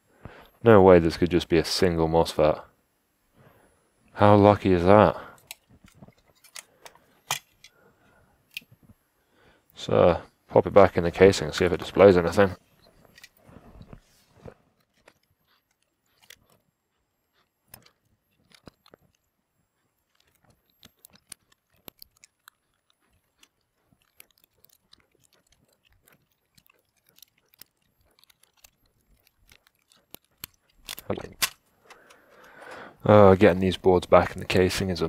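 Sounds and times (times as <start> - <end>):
small clicks and taps of laptop parts: 12.8 - 32.6.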